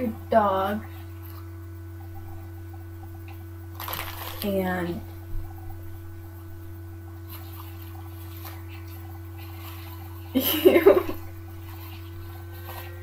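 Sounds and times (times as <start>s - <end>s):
low electrical hum: 0.0s - 13.0s
woman laughing: 10.3s - 11.3s.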